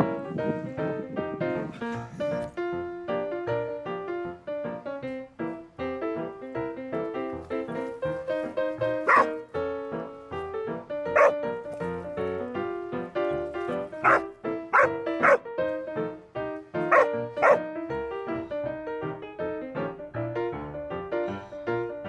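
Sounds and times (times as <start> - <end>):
bouncy keyboard music: 0.0 - 22.0
dog barking: 9.0 - 9.3, 11.2 - 11.4, 14.0 - 15.4, 16.9 - 17.6.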